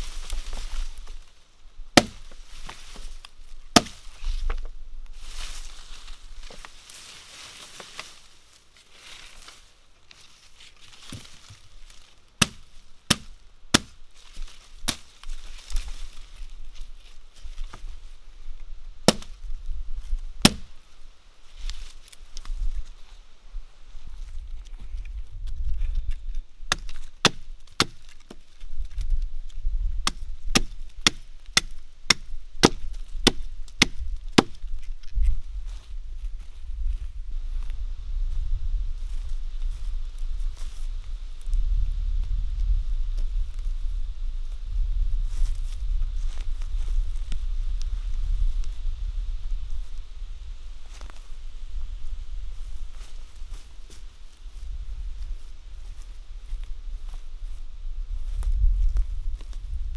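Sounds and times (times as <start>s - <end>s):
hatchet chopping wood: 2.0s - 2.4s, 3.7s - 4.0s, 12.4s - 14.0s, 19.1s - 19.3s, 20.4s - 20.7s, 26.7s - 28.4s, 30.0s - 34.6s.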